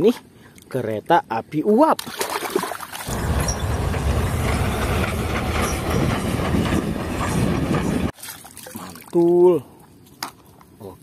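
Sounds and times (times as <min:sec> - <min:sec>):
water sloshing: 0:02.0 - 0:05.6, 0:08.1 - 0:09.2
steam locomotive running: 0:03.1 - 0:08.1.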